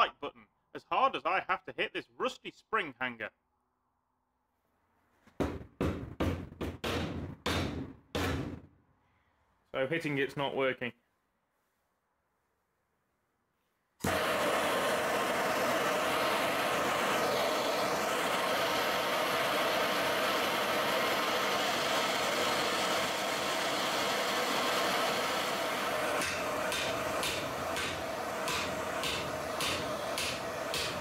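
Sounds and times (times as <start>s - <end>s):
blowtorch roaring: 14.0s - 31.0s
hammer blows on metal: 26.2s - 31.0s.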